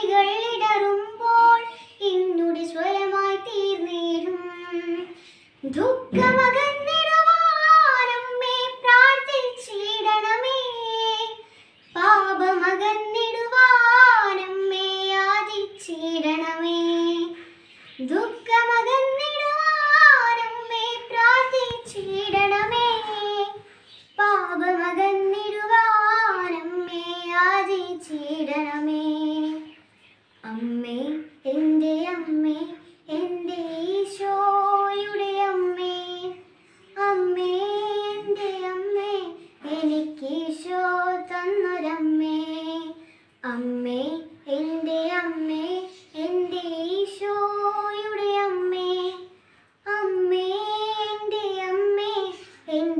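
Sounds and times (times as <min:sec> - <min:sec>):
girl singing unaccompanied: 0:00.0 - 0:52.9.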